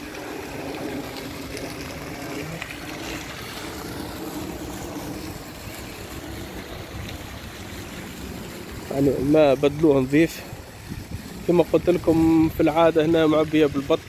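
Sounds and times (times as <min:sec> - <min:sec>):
low motor hum: 0:00.0 - 0:13.1
fountain jets splashing: 0:00.0 - 0:14.0
wind on microphone: 0:10.2 - 0:12.8.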